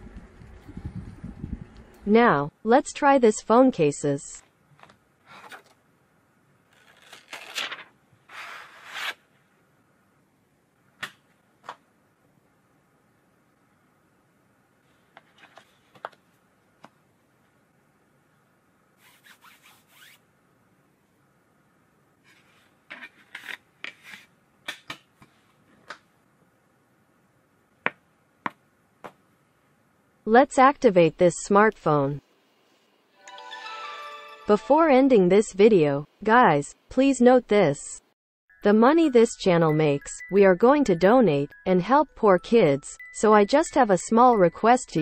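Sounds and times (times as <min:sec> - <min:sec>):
plastic film crinkling: 0:06.7 - 0:08.0
phone case rubbing and scraping: 0:19.0 - 0:20.2.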